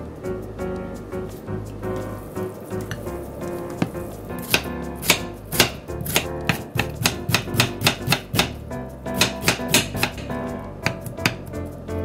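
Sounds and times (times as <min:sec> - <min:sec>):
knife chopping cabbage on a board: 0:04.4 - 0:08.6, 0:09.2 - 0:11.4.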